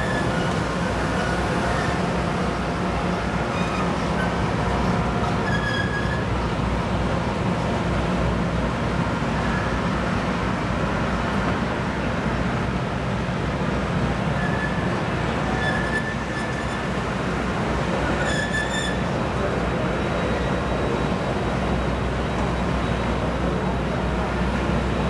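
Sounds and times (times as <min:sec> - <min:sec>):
high-pitched wheel squeals: 0:00.0 - 0:02.0, 0:05.3 - 0:06.3, 0:14.4 - 0:17.0, 0:18.1 - 0:19.1
train cars rumbling on rails: 0:00.0 - 0:25.0.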